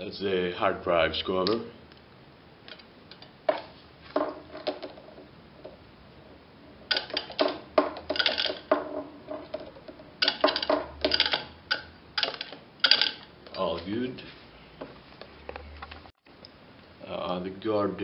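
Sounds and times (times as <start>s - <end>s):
metal cover clinking and rattling: 6.9s - 13.2s.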